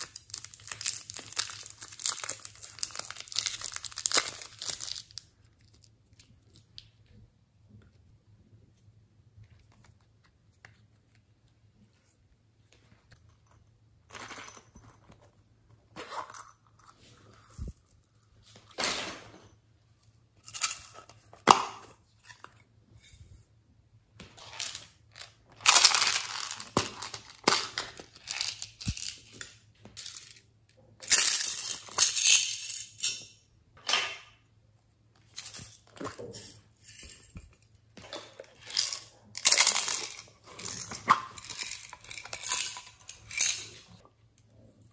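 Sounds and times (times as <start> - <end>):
beads rattling and clinking: 0.0 - 5.2, 24.4 - 30.4, 31.0 - 33.3, 38.2 - 44.0.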